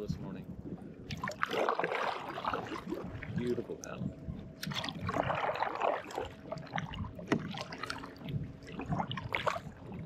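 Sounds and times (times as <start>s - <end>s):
kayak paddle splashing: 1.1s - 3.6s, 4.6s - 10.0s.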